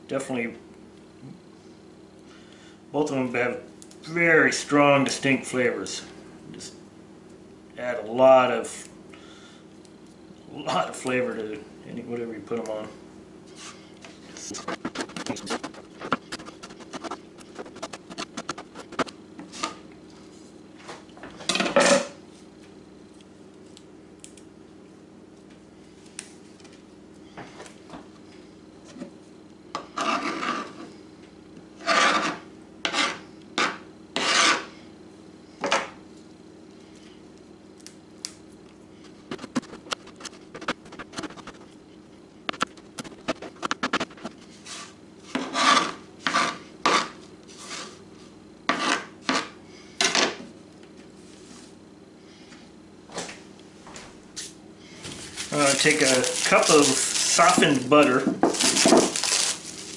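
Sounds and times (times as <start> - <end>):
knife scraping across board: 14.4 - 19.8, 29.8 - 30.8, 31.8 - 34.7, 39.0 - 41.8, 42.5 - 48.0, 48.7 - 49.6.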